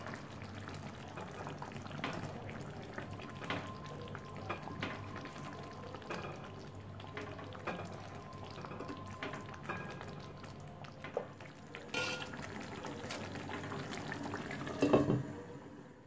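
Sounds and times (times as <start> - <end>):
curry bubbling and popping: 0.0 - 15.1
glass lid clattering on pan: 11.9 - 12.4.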